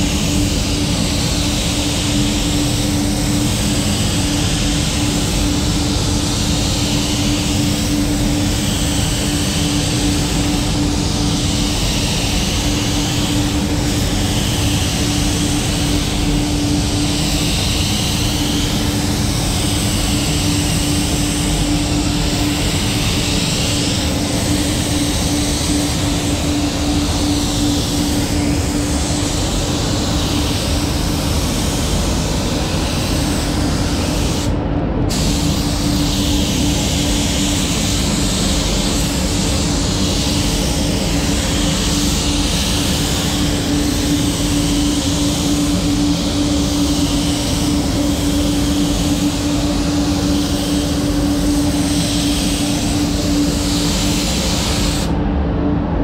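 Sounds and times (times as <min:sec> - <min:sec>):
paint spray gun hissing: 0:00.0 - 0:55.2
ventilation hum: 0:00.0 - 0:56.0.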